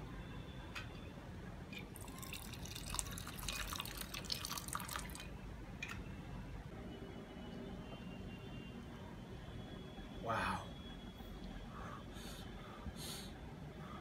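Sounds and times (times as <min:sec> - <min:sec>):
drink pouring over ice: 0:01.8 - 0:05.3.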